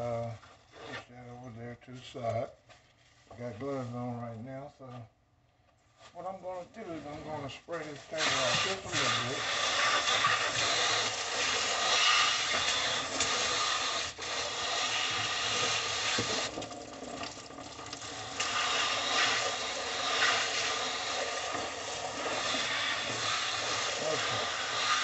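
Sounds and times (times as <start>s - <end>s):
water spray hissing: 8.1s - 16.6s, 17.9s - 25.0s.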